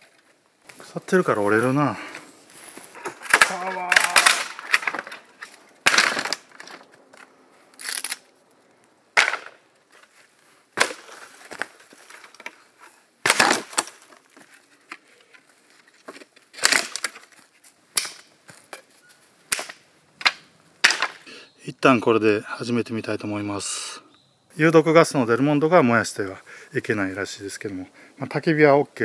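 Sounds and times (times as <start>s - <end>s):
bamboo cracking and snapping: 3.0s - 8.3s, 10.8s - 18.9s, 19.5s - 21.2s.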